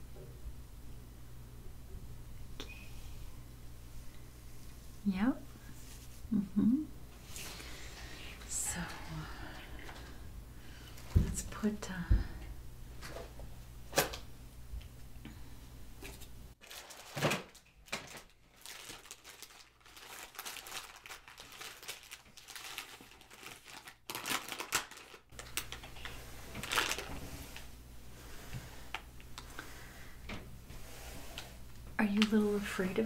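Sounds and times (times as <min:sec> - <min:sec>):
plastic and paper crinkling: 0:16.6 - 0:27.7.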